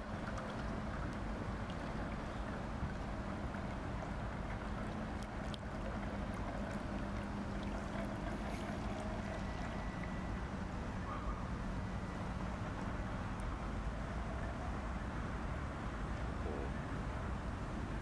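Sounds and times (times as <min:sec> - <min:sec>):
model boat motor humming: 0:00.0 - 0:10.8.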